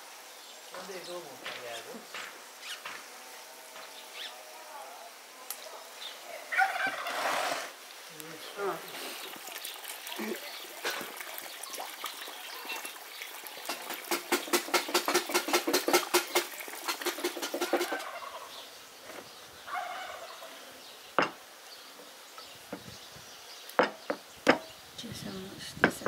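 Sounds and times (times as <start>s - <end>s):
turkey gobbling: 6.5s - 7.6s, 14.5s - 18.6s, 19.7s - 20.6s
sharp knocks: 13.7s - 18.0s, 21.2s - 21.4s.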